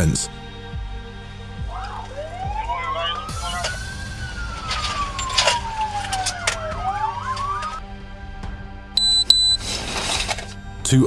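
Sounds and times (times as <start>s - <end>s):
police siren wailing: 1.6s - 7.8s.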